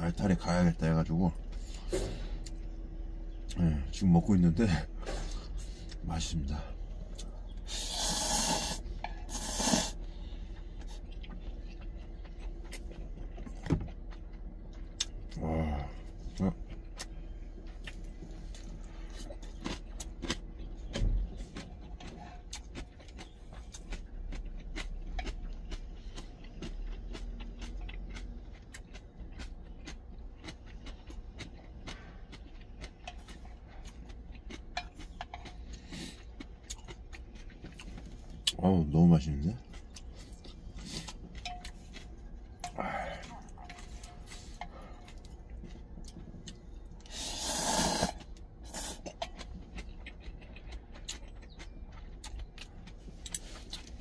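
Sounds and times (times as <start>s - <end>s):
chewing and eating: 0.0s - 54.0s
low hum: 0.0s - 54.0s
noodles slurped loudly: 7.7s - 10.0s, 47.1s - 49.0s.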